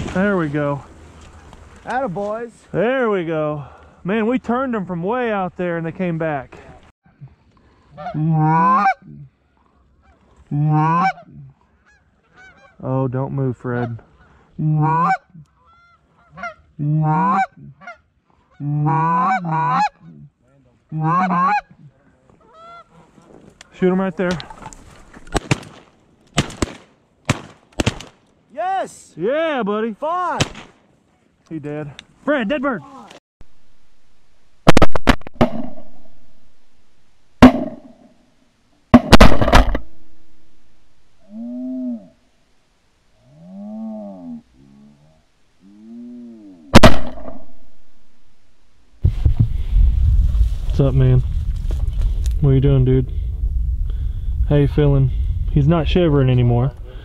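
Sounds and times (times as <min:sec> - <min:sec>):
goose honking: 0:08.0 - 0:09.0, 0:10.0 - 0:12.9, 0:13.7 - 0:20.2, 0:20.9 - 0:21.8, 0:22.4 - 0:23.1
shotgun shots with echo: 0:37.4 - 0:38.1, 0:39.0 - 0:40.1, 0:46.8 - 0:48.0.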